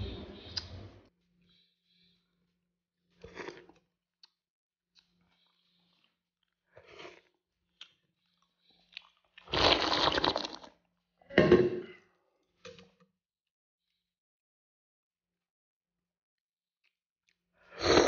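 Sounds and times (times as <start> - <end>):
person slurping porridge: 3.2 - 3.8, 6.8 - 7.3, 7.9 - 10.8, 17.7 - 18.0
person chewing: 5.0 - 10.7.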